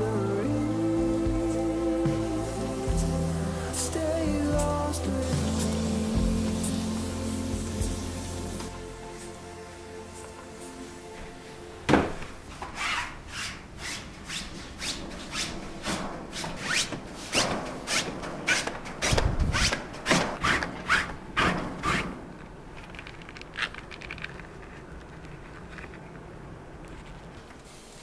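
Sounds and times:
hand scrubbing strokes: 0:00.0 - 0:22.3.

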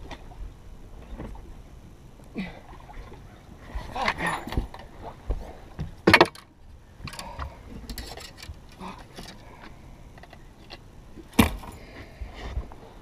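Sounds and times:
clicks and knocks on boat deck: 0:04.1 - 0:09.4.

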